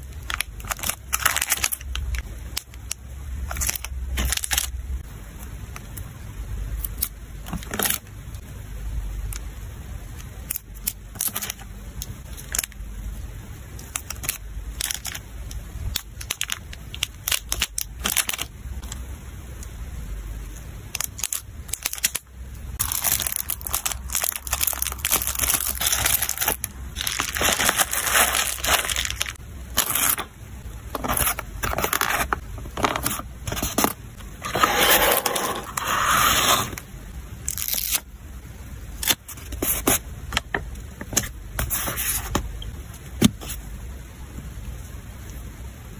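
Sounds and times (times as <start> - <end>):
plastic and bubble wrap crinkling: 0.0 - 4.7, 15.9 - 19.0, 20.9 - 30.3, 30.9 - 36.8.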